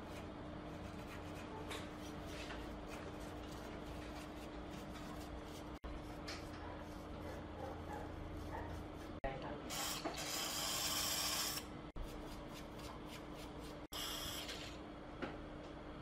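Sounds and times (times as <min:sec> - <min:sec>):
brush scrubbing circuit board: 0:00.0 - 0:09.2.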